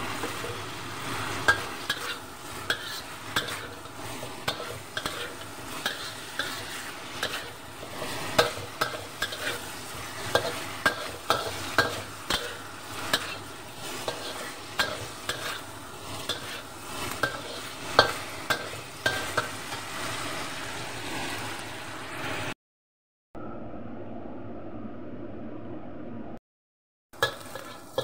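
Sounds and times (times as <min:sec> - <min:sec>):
spatula scraping a wok: 0:00.0 - 0:21.6, 0:27.2 - 0:28.0
food sizzling: 0:00.0 - 0:22.6, 0:27.2 - 0:28.0.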